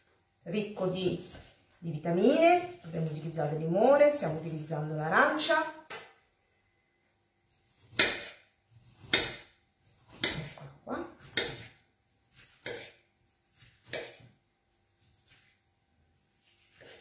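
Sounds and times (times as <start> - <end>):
knife slicing orange: 7.5 - 14.3, 16.3 - 17.0
knife striking wooden board: 7.9 - 8.4, 9.0 - 9.5, 11.3 - 11.7, 13.8 - 14.2.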